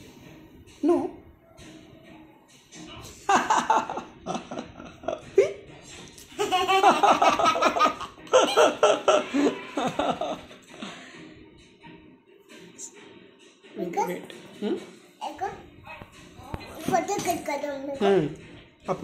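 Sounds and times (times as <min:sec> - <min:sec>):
toddler laughing: 0:06.4 - 0:10.4.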